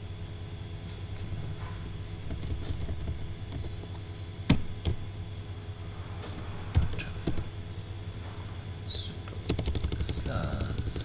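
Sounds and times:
steady low hum: 0.0s - 11.0s
keyboard typing: 2.2s - 3.9s, 6.7s - 7.5s, 9.3s - 11.0s.

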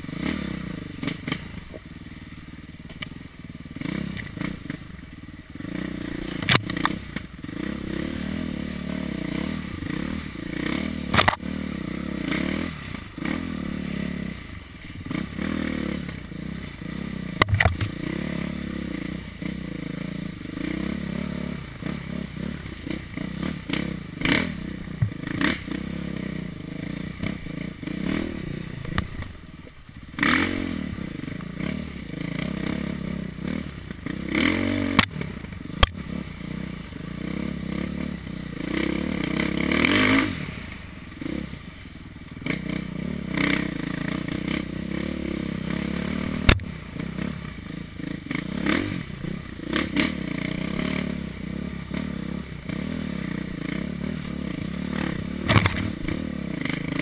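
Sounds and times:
dirt bike engine revving: 0.0s - 57.0s
bike clattering and scraping: 53.8s - 57.0s.

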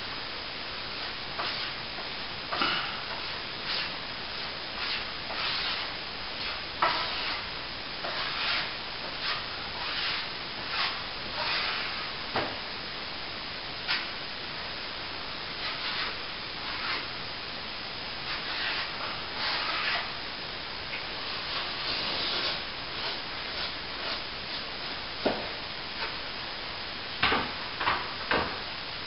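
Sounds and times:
trowel scraping plaster: 4.8s - 12.1s, 15.6s - 17.1s, 18.3s - 20.1s, 21.2s - 24.6s.

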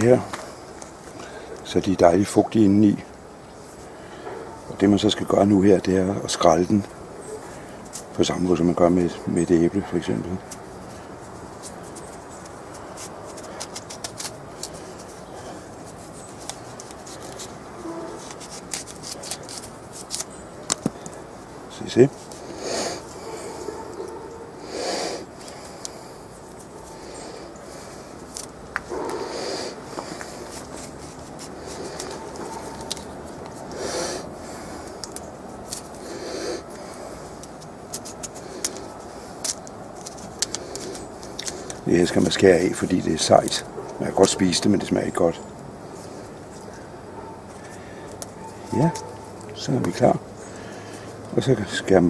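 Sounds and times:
background hiss: 0.0s - 52.0s
person breathing: 0.4s - 1.6s, 3.9s - 4.5s, 22.3s - 32.8s, 33.6s - 35.2s, 35.9s - 37.5s, 45.8s - 48.7s, 50.4s - 51.2s
knife clicking through cactus skin: 11.6s - 15.1s, 15.8s - 21.2s, 28.2s - 29.2s, 30.2s - 33.8s, 34.8s - 36.0s, 37.3s - 44.4s.

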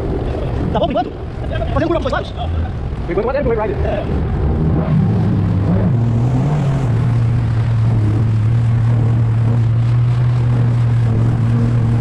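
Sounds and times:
jet ski engine droning: 0.0s - 12.0s.

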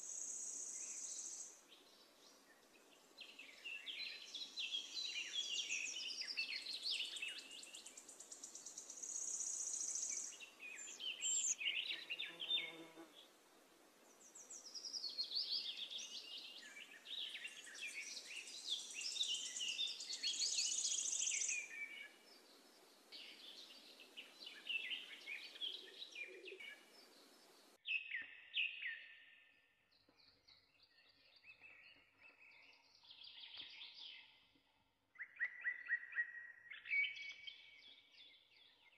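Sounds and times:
birds chirping and singing: 0.7s - 12.9s, 14.2s - 29.1s.

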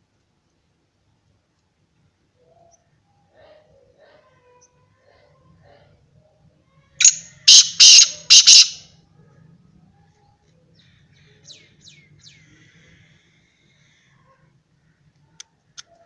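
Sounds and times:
bird calling harsh scratchy notes: 7.0s - 8.8s.

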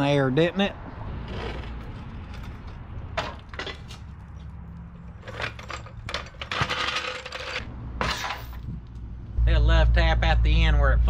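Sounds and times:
metal rattling and scraping on concrete: 1.2s - 8.8s.

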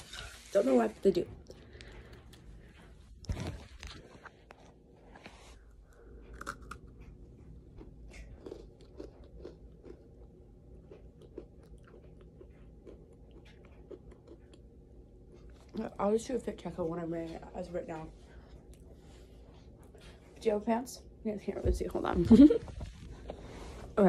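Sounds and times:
person chewing and crunching: 5.6s - 15.8s.

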